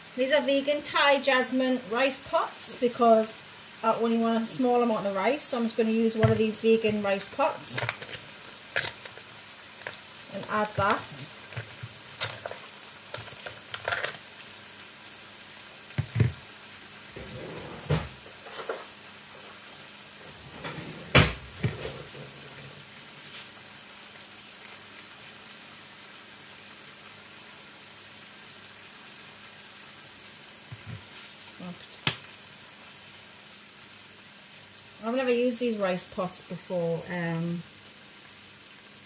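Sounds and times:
food sizzling in a frying pan: 0.0s - 39.0s
knocks and clatters of stirring: 16.0s - 16.4s, 20.5s - 22.7s.

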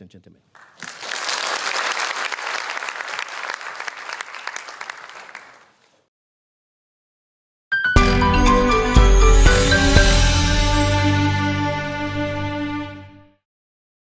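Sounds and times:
audience applauding: 0.6s - 6.0s.

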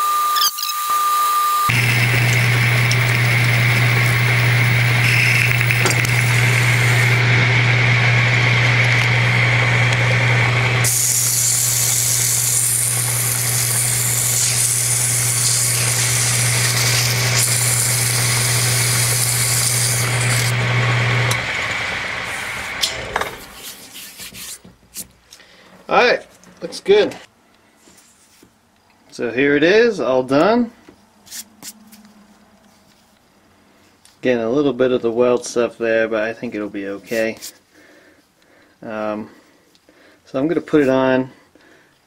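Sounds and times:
metal lathe humming: 0.1s - 23.6s
cutting tool on spinning metal: 0.1s - 23.8s
lathe running down: 1.7s - 23.6s
sandpaper hissing on metal: 10.9s - 20.5s.

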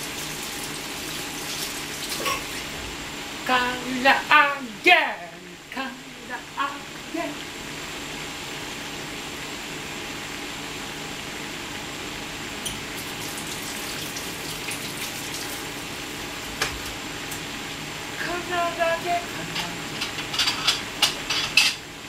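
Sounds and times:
oil sizzling and crackling: 0.0s - 3.3s, 12.6s - 18.2s.

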